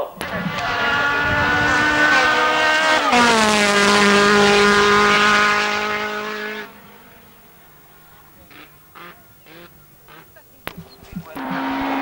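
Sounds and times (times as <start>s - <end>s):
racing car engine passing by: 0.0s - 12.0s.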